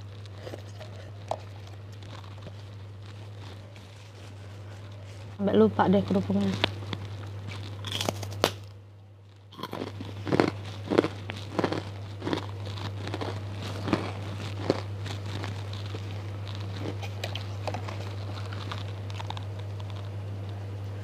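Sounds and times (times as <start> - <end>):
chewing: 0.0 - 5.4, 9.3 - 20.6
crackers crunching: 0.0 - 21.0
low electrical hum: 0.0 - 21.0.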